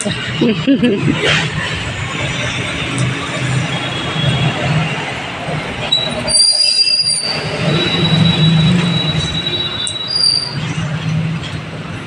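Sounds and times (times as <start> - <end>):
high-pitched squeal: 5.8 - 10.8.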